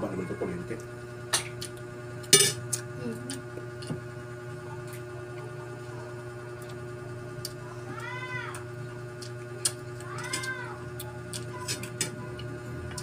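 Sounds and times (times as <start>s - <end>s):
shells and spoon clinking dishes: 2.3s - 2.6s.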